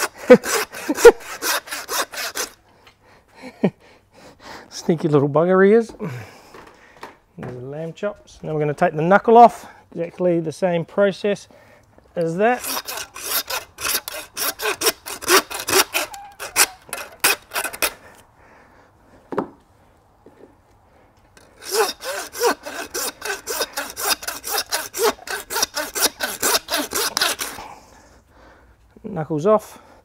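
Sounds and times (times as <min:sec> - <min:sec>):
hand saw rasping through bone: 0:00.0 - 0:02.6, 0:12.2 - 0:18.2, 0:21.4 - 0:27.8.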